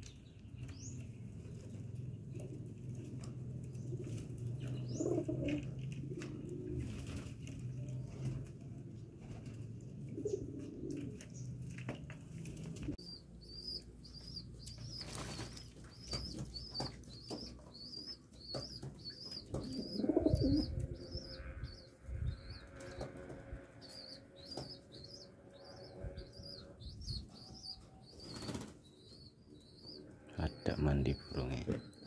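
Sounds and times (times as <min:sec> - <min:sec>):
wings flapping and splashing: 0:14.9 - 0:17.4, 0:28.2 - 0:28.8.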